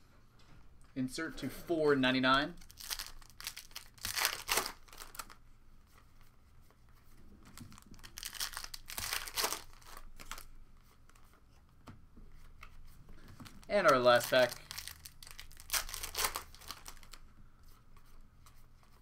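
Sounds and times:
foil wrapper tearing and crinkling: 2.6 - 5.4, 7.8 - 10.4, 13.8 - 17.2.

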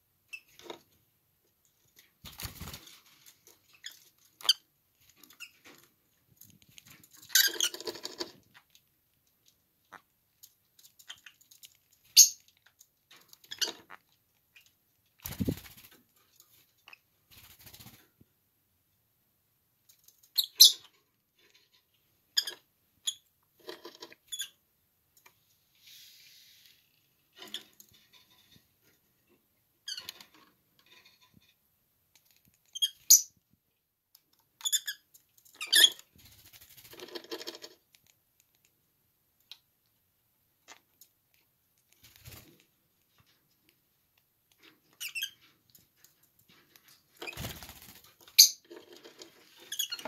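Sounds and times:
light taps and scrapes: 2.8 - 14.7, 20.8 - 22.6, 23.5 - 24.3, 25.2 - 32.7, 36.8 - 38.7, 40.7 - 47.4, 48.0 - 50.0
lovebird chirping: 12.2 - 12.4.

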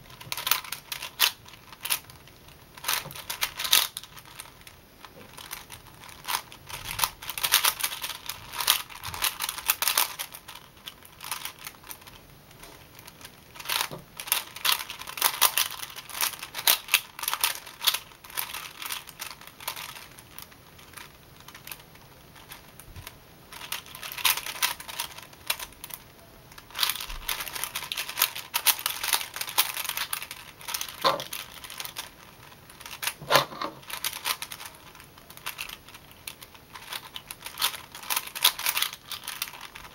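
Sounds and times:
puzzle cube plastic clicking: 5.3 - 12.2, 23.5 - 39.9.

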